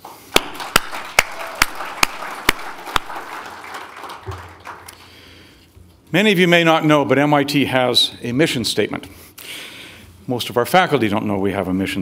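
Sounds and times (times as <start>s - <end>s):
man clapping close to microphone: 0.0s - 5.2s
audience applauding: 0.3s - 5.3s.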